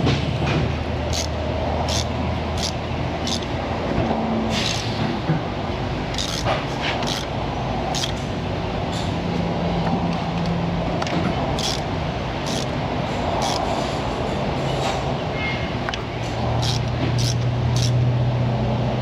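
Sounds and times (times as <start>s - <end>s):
steady rushing background noise: 0.0s - 19.0s
hand tools clicking and clinking: 1.0s - 5.0s, 6.1s - 7.3s, 7.9s - 8.2s, 10.4s - 12.8s, 13.4s - 13.9s, 16.5s - 18.0s.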